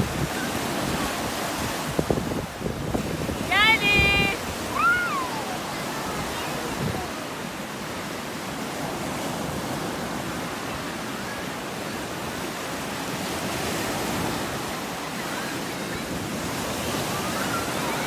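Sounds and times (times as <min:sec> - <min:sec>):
waves breaking on sandy beach: 0:00.0 - 0:18.0.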